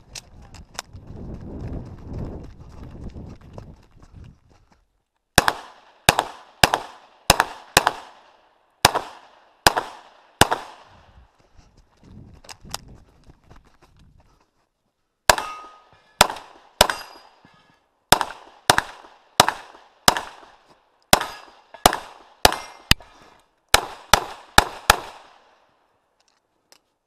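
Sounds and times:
pistol shots with echo: 0:05.4 - 0:11.0, 0:15.3 - 0:17.4, 0:18.1 - 0:23.0, 0:23.7 - 0:25.6.

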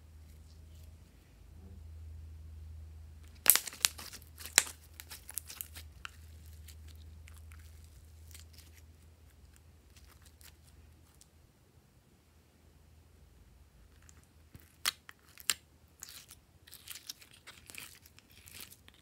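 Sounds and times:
slime crackling pops: 0:03.3 - 0:05.8.

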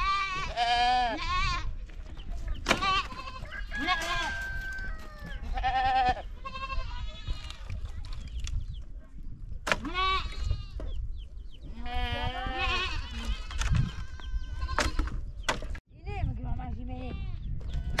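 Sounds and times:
goats bleating: 0:00.0 - 0:01.7, 0:02.8 - 0:04.6, 0:05.4 - 0:07.6, 0:09.9 - 0:10.8, 0:11.8 - 0:14.8.

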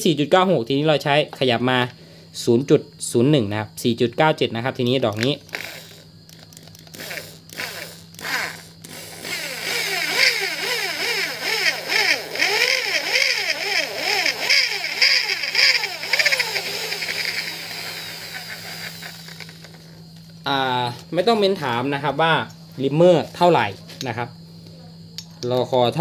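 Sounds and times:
electric drill whining: 0:05.5 - 0:20.0
reamer cutting metal hiss: 0:16.2 - 0:19.4.

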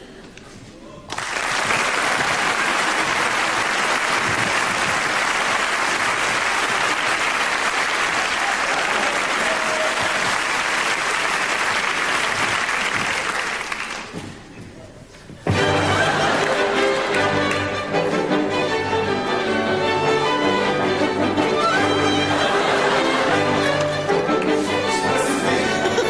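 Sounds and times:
large audience applauding: 0:01.1 - 0:14.2, 0:15.8 - 0:18.0, 0:21.6 - 0:24.7.

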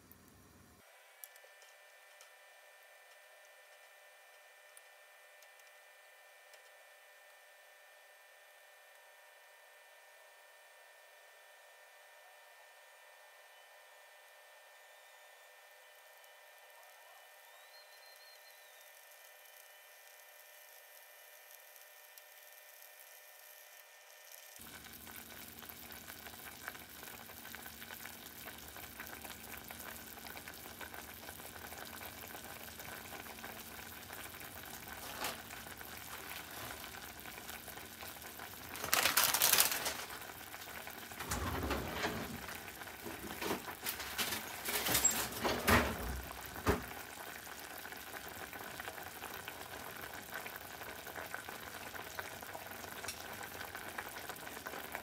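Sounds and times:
soup boiling and bubbling: 0:15.5 - 0:55.0
sputtering and popping: 0:34.4 - 0:41.2.

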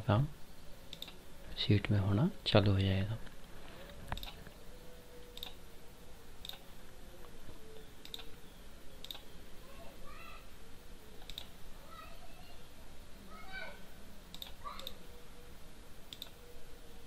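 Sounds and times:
computer mouse clicking: 0:00.9 - 0:01.2, 0:04.1 - 0:04.6, 0:05.2 - 0:05.6, 0:06.4 - 0:06.7, 0:08.0 - 0:08.4, 0:09.0 - 0:09.3, 0:11.2 - 0:11.5, 0:14.3 - 0:15.0, 0:16.1 - 0:16.4.

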